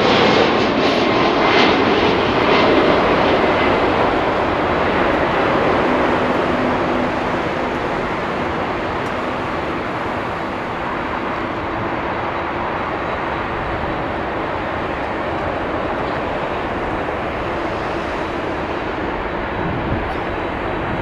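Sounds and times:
jet airliner landing roar: 0:00.0 - 0:21.0.

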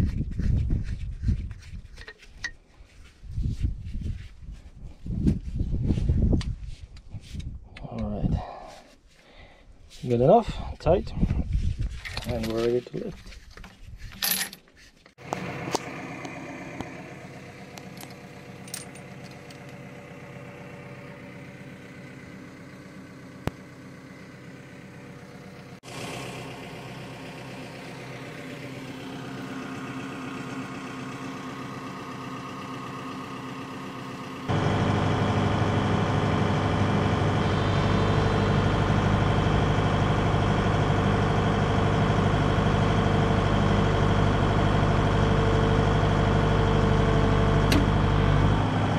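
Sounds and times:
excavator diesel engine running: 0:15.2 - 0:48.9.

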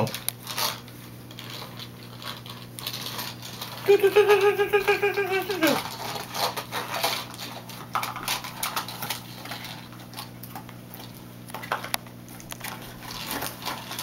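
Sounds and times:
toy train clicking on plastic track: 0:01.4 - 0:10.3.

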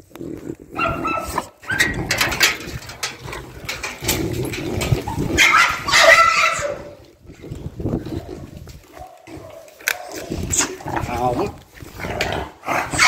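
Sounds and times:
dog barking and whining: 0:00.8 - 0:02.3, 0:04.8 - 0:07.0, 0:08.3 - 0:10.8, 0:12.7 - 0:13.0
handling knocks and scuffling: 0:01.7 - 0:05.8.

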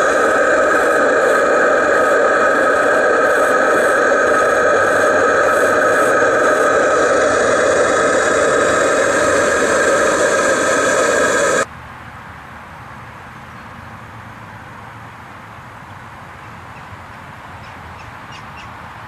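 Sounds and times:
held tones: 0:00.0 - 0:11.7
steam engine hissing rush: 0:00.0 - 0:11.7.

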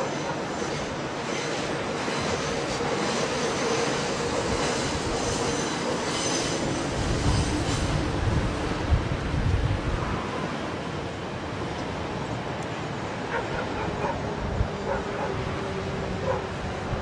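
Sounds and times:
freight train rumble: 0:00.0 - 0:17.0
dog barking and yipping: 0:13.3 - 0:15.4, 0:16.2 - 0:16.5.

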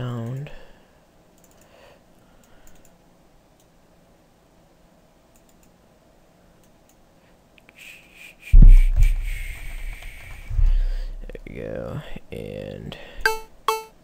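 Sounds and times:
faint mouse clicks: 0:01.4 - 0:01.7, 0:02.4 - 0:03.0, 0:05.3 - 0:05.8.

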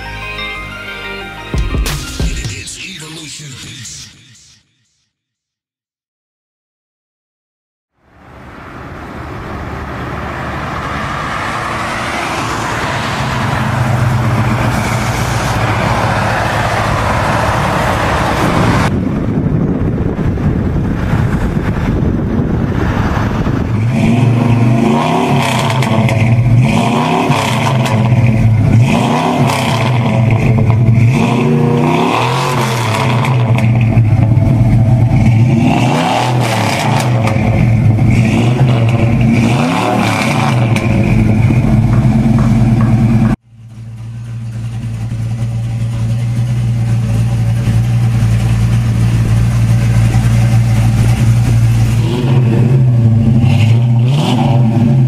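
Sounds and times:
car engine running hard: 0:08.0 - 0:55.0
engine revving: 0:08.7 - 0:19.0, 0:20.2 - 0:43.4, 0:44.9 - 0:55.0.

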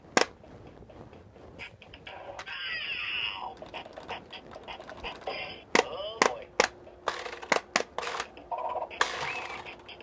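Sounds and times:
toy handling clicks: 0:03.4 - 0:10.0.

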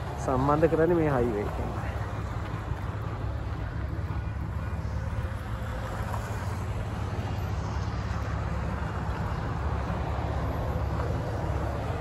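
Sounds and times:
cars passing: 0:00.0 - 0:12.0
low engine rumble: 0:00.0 - 0:12.0.

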